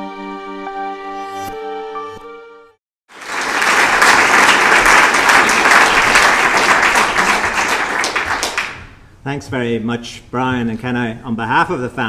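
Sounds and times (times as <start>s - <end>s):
audience applauding: 3.1s - 9.0s.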